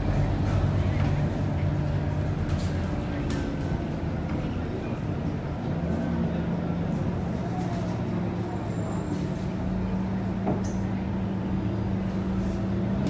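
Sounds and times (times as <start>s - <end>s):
bus diesel engine running: 0.0s - 13.0s.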